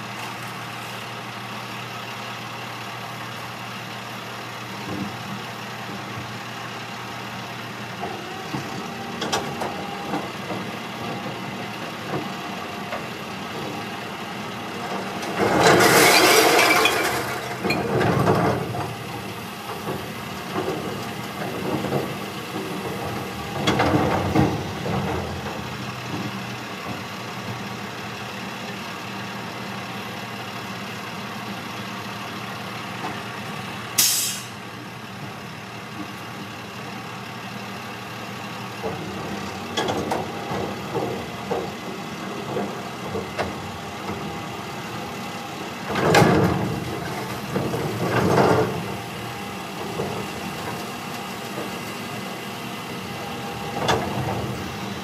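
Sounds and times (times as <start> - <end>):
hydraulic hopper raising: 15.0 - 25.7
load crashing into truck body: 15.3 - 18.8
diesel engine idling: 17.0 - 55.0.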